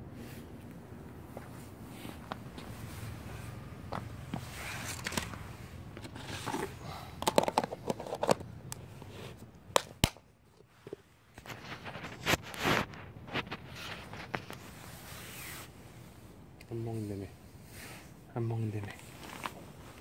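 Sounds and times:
plastic container clicks and scrapes: 4.5s - 10.1s.

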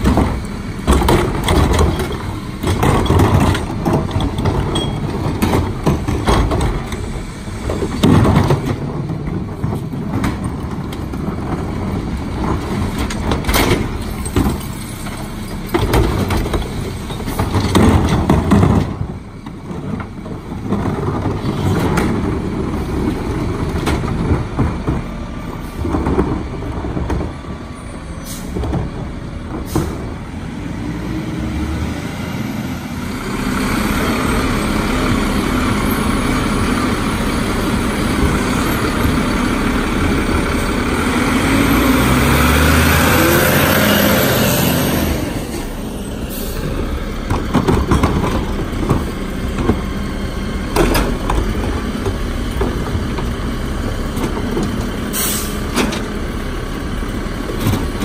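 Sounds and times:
carts knocking and banging into hopper: 0.0s - 27.4s, 46.7s - 50.0s, 50.6s - 56.1s
truck engine running: 31.8s - 58.0s.

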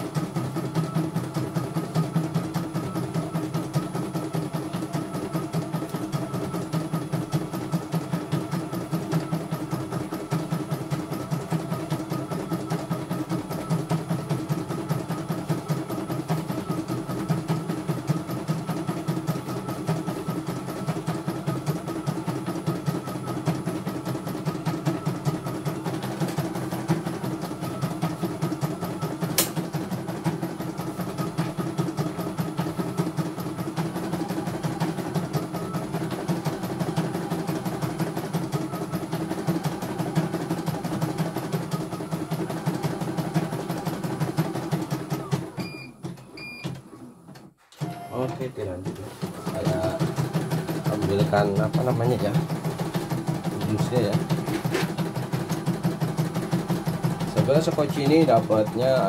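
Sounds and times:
embroidery machine stitching: 48.2s - 59.0s.

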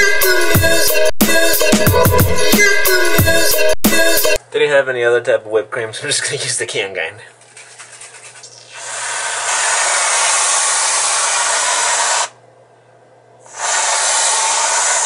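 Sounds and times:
aerosol whipped cream spraying: 7.6s - 12.4s, 13.5s - 15.0s.

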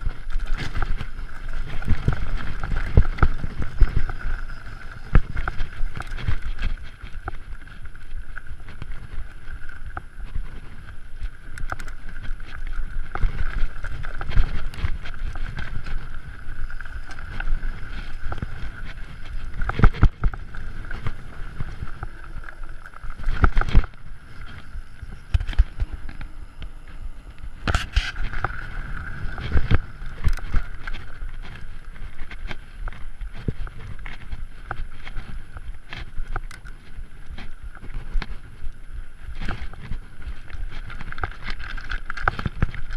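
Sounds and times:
bike rattling over bumps: 0.0s - 42.9s
wind rumbling on microphone: 0.0s - 42.9s.

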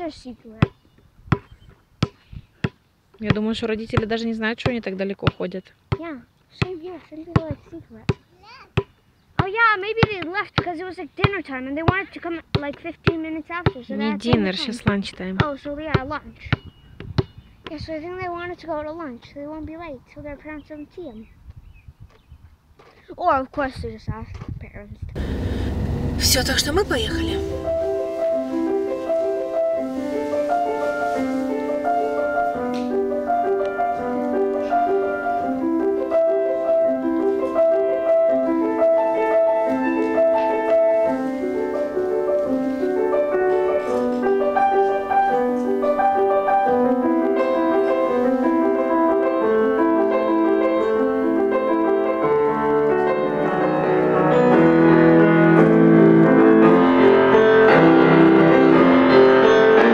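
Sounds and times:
solo grand piano: 25.2s - 59.9s.

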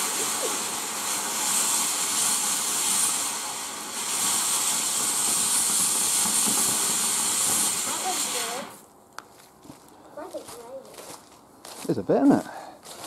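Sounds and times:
firework fountain hissing: 0.0s - 8.9s.

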